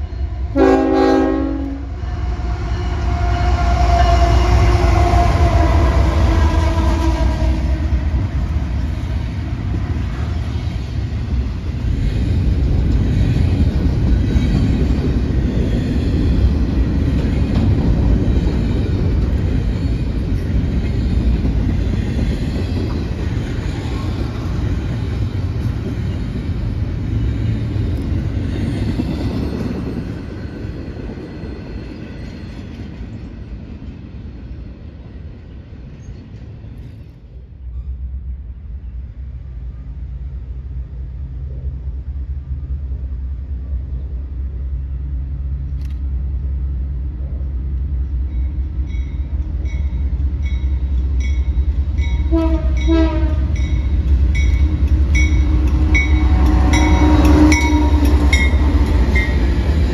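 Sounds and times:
train horn blasts: 0.0s - 8.2s, 52.2s - 53.8s, 55.2s - 59.3s
diesel locomotive engine rumble: 0.0s - 59.9s
train cars rumbling on rails: 0.0s - 59.9s
locomotive bell ringing: 48.2s - 59.7s.

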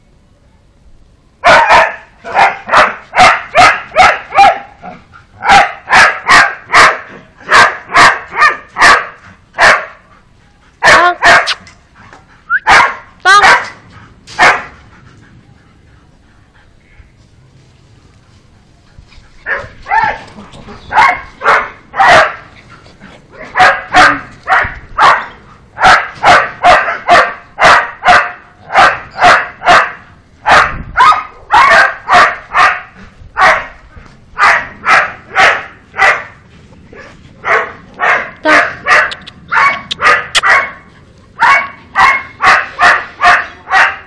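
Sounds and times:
puppy barking: 1.4s - 4.8s, 5.4s - 10.0s, 10.8s - 11.6s, 12.6s - 13.8s, 14.4s - 14.8s, 19.5s - 20.2s, 20.9s - 22.5s, 23.4s - 33.8s, 34.4s - 36.4s, 37.0s - 44.0s.

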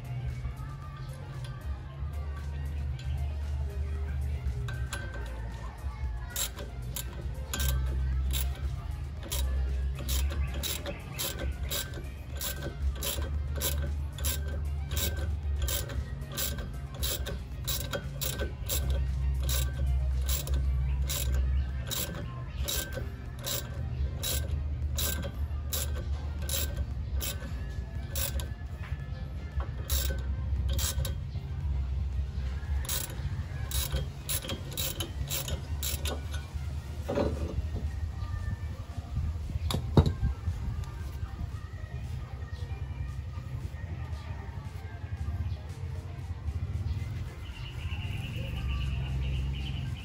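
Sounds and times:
steady low hum: 0.0s - 50.0s
ratchet wrench clicking: 4.2s - 37.9s.

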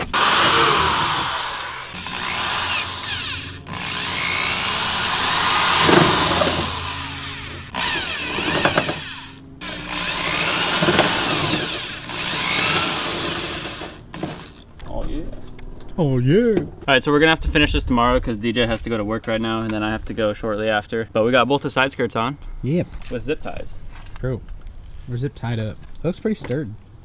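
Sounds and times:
cordless drill boring holes: 0.0s - 14.5s.

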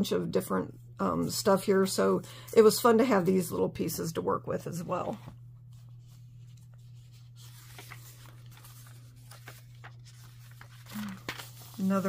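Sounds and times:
steady low hum: 0.0s - 12.0s
paper pages rustling: 4.9s - 12.0s.

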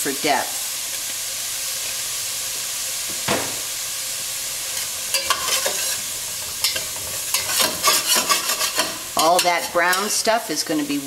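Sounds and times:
onion sizzling in oil: 0.0s - 11.0s
metal spatula scraping pot: 4.8s - 10.3s
spatula knocking pot: 5.1s - 10.2s.

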